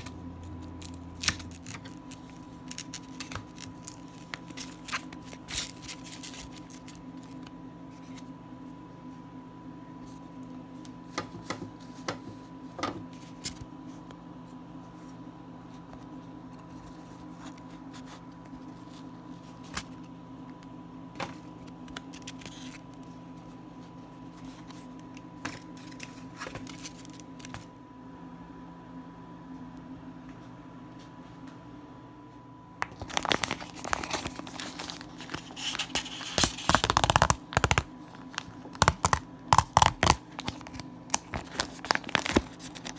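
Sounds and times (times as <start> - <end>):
steady low hum: 0.0 - 42.9
lettuce crackling and rustling: 32.8 - 42.9.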